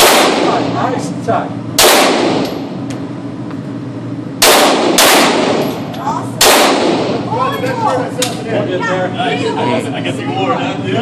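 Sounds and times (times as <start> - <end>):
pistol shots with echo: 0.0 - 0.8, 1.8 - 2.6, 4.4 - 5.8, 6.4 - 7.2.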